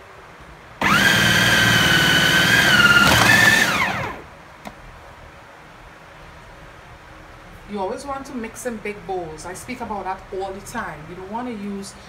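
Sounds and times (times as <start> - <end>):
food processor motor whining: 0.8 - 4.3.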